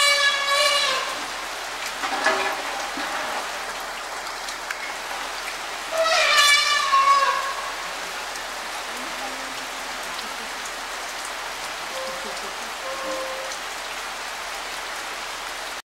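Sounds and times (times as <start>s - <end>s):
heavy rain on grass: 0.0s - 15.8s
high-pitched call: 11.9s - 13.6s.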